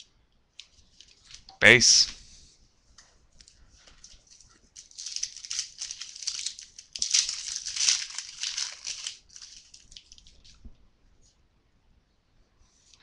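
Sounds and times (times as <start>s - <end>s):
crinkling of card wrappers: 3.4s - 10.6s.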